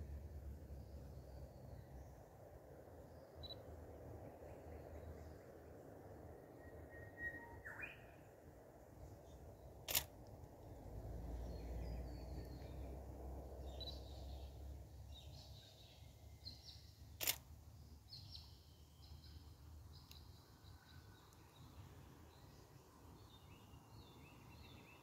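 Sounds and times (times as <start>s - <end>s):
faint bird chirps: 3.1s - 3.7s, 4.3s - 8.4s
camera shutter clicks: 9.9s - 10.1s, 17.2s - 17.4s.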